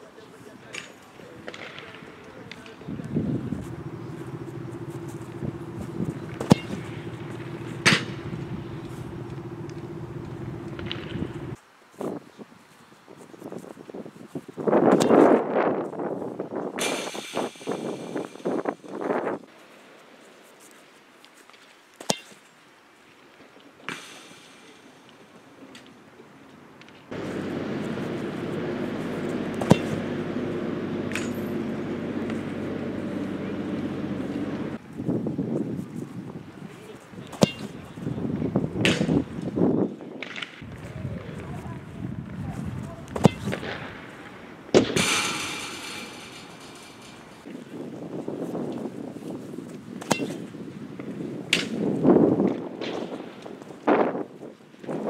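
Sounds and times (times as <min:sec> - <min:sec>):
vehicle engine droning: 0:01.4 - 0:11.6, 0:27.1 - 0:34.8, 0:42.8 - 0:47.5
sharp knock: 0:03.6 - 0:11.6.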